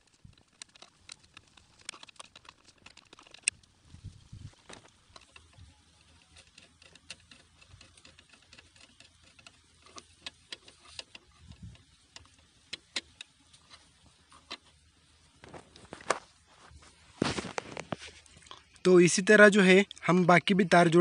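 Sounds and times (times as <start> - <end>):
screwdriver clicking and scraping: 0.1 - 3.6, 4.6 - 14.7.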